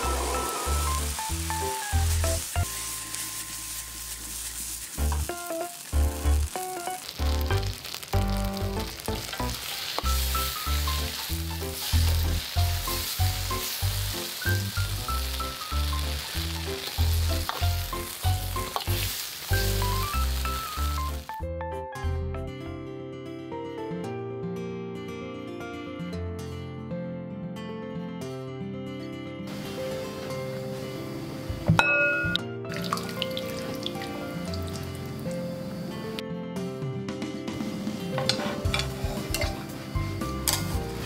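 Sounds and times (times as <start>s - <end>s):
food sizzling in a wok: 0.0s - 21.4s, 29.5s - 36.2s, 37.4s - 41.0s
metal ladle stirring: 38.2s - 39.6s.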